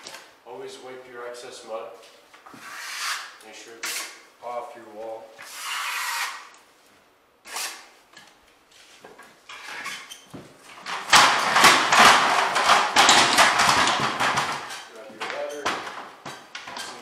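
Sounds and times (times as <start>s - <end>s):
taping knife scraping compound: 2.5s - 4.2s, 5.4s - 6.6s, 7.4s - 7.9s.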